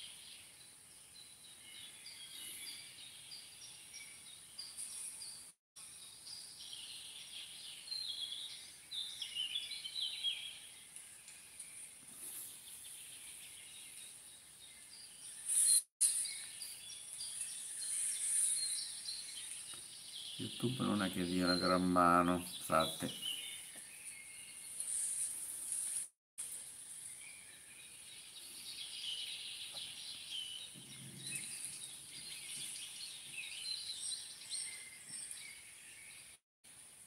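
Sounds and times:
small birds chirping: 0.0 - 36.4.

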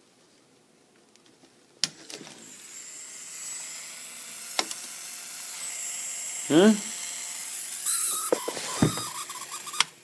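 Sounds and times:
small motor whining: 2.4 - 10.0.

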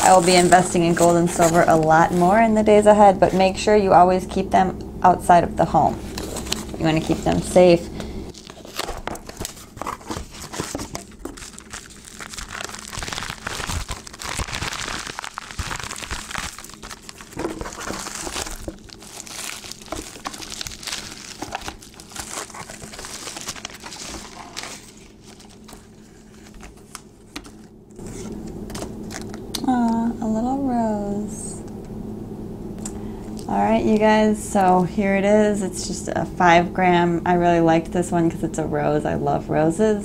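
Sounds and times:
paper and cardboard crinkling: 0.0 - 2.6, 6.0 - 29.4.

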